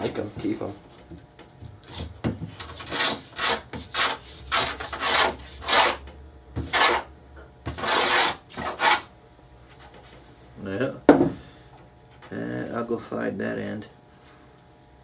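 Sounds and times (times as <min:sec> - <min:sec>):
block plane strokes on plywood: 0:01.9 - 0:06.0, 0:06.6 - 0:07.1, 0:07.7 - 0:09.1.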